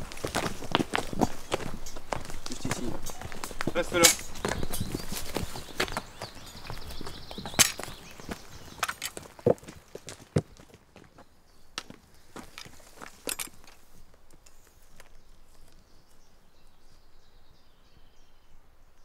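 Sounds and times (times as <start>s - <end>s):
footsteps on leafy forest floor: 0.0s - 11.1s
woodland ambience: 0.0s - 19.0s.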